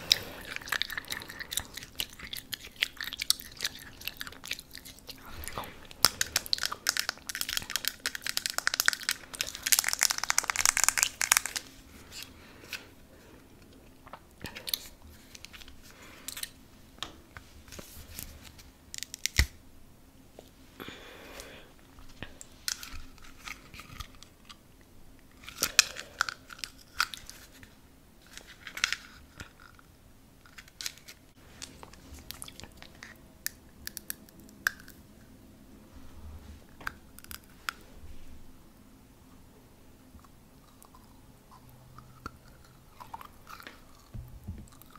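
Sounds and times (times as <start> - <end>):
crunching and chewing: 0.0 - 16.6, 25.2 - 35.1, 40.1 - 44.9.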